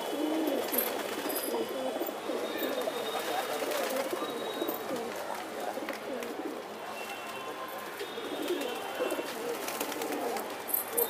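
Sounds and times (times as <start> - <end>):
pigeons cooing: 0.0 - 5.1, 8.0 - 11.0.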